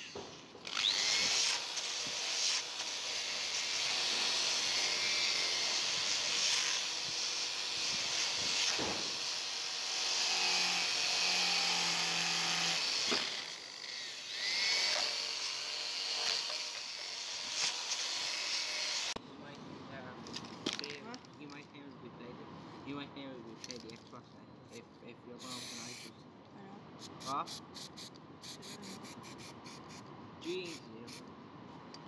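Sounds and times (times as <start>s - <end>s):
drill grinding rusty steel: 0.0s - 19.2s, 25.4s - 26.1s.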